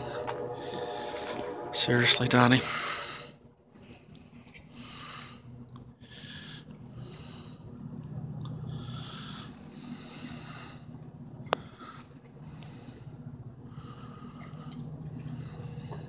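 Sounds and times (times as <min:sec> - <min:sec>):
person breathing: 0:00.0 - 0:01.7, 0:08.7 - 0:10.9
low hum: 0:00.0 - 0:03.6.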